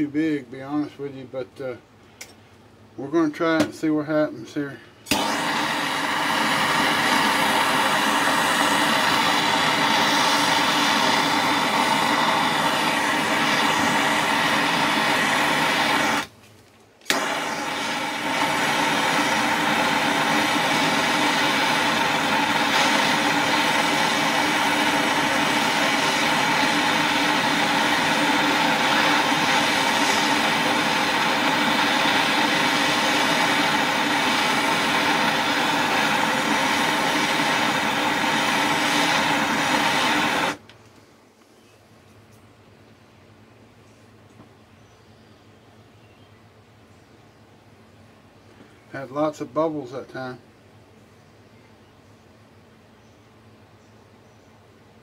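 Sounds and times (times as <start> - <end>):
gas torch flame: 5.0 - 16.4, 17.0 - 40.7.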